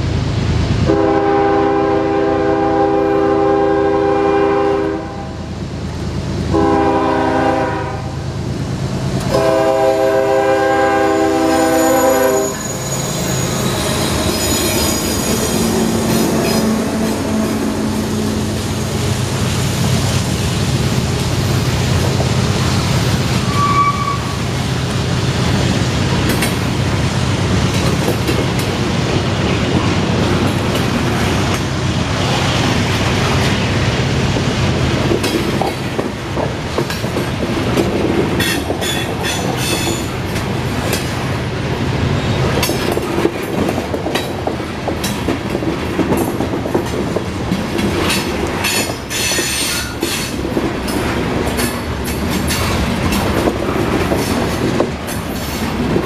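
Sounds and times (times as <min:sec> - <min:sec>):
train rumbling along track: 0:00.0 - 0:56.0
high wheel squeal: 0:11.2 - 0:16.8, 0:23.4 - 0:24.4, 0:38.5 - 0:40.1, 0:48.7 - 0:50.4
train wheels clacking over rail joints: 0:25.6 - 0:33.7, 0:34.3 - 0:41.4, 0:42.4 - 0:56.0.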